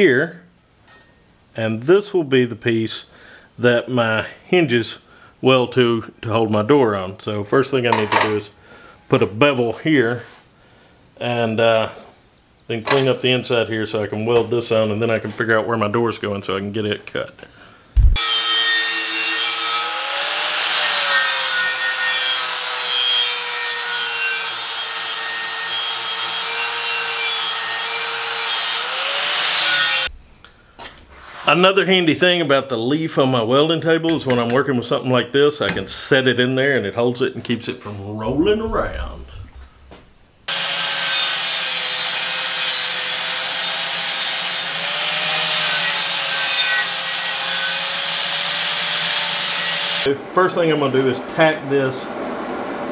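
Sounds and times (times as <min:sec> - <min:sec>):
angle grinder grinding steel: 0:18.2 - 0:30.1, 0:40.5 - 0:50.1.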